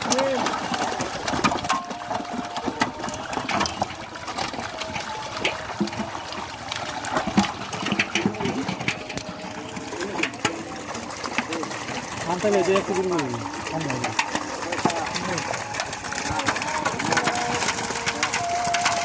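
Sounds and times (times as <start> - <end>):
fish thrashing in water: 0.0 - 19.0
water splashes and slaps: 0.0 - 19.0.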